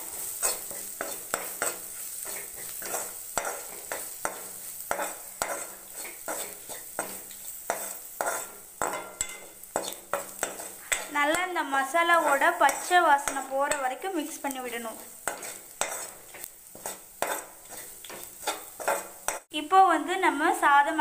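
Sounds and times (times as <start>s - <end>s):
spatula scraping a pan: 0.0s - 19.5s
oil sizzling: 0.0s - 21.0s.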